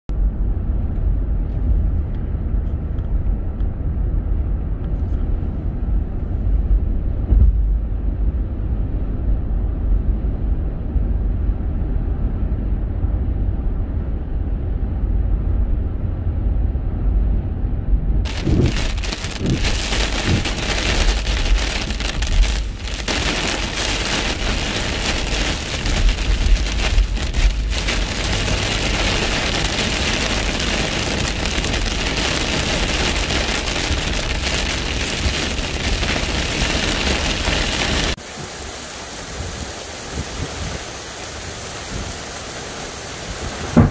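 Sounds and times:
car cabin road rumble: 0.1 - 38.2, 43.3 - 43.9
heavy rain on windscreen: 18.2 - 43.9.

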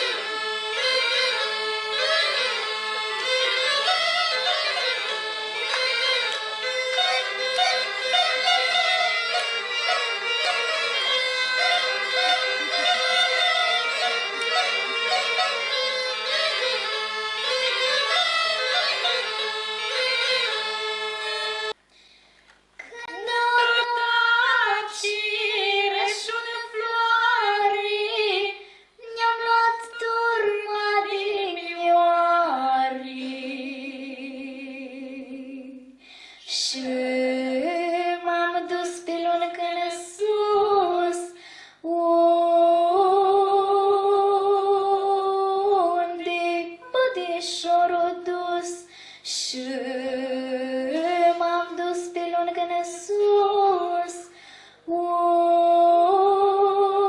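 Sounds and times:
girl singing into a microphone: 22.8 - 57.0.

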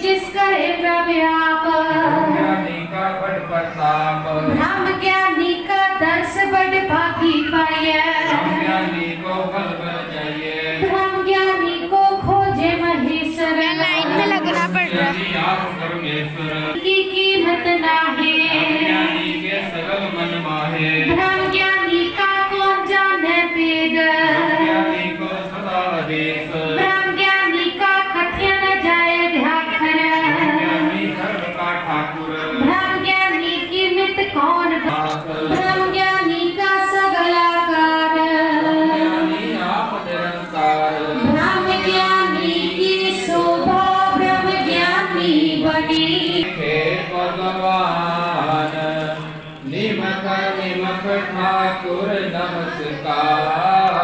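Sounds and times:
person singing a hymn: 0.0 - 54.0
high voice singing: 13.3 - 16.2.

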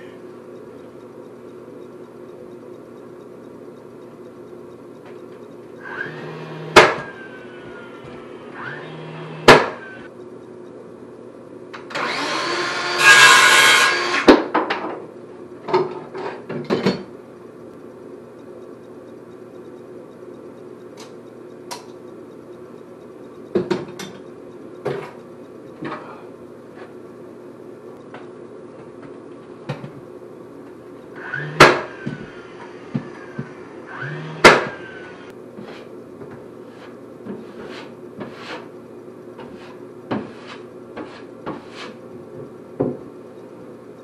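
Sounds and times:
nail gun whir: 5.8 - 7.8, 8.5 - 10.0, 11.8 - 14.4, 31.2 - 35.3
circular saw cutting wood: 5.8 - 10.1, 11.9 - 14.3, 31.2 - 35.3
nail gun firing: 6.7 - 7.1, 9.4 - 9.8, 31.2 - 32.0, 34.0 - 34.9.

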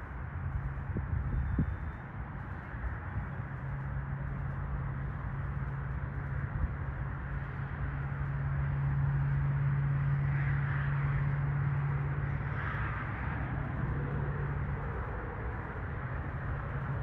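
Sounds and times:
low engine drone: 0.0 - 17.0.

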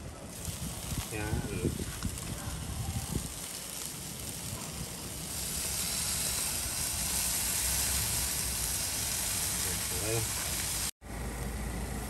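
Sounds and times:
sauce sizzling on a hot grill: 0.0 - 12.0.

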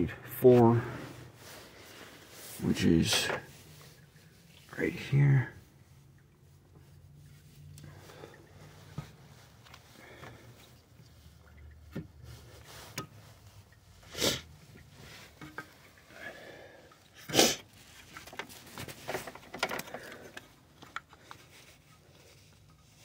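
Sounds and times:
small clicks and rustles: 5.9 - 14.0, 16.9 - 23.0.

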